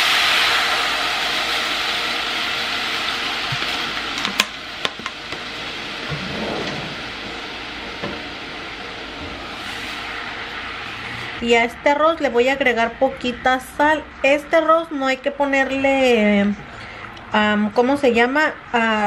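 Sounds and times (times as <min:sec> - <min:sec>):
water sizzling in hot pot: 0:00.0 - 0:11.4.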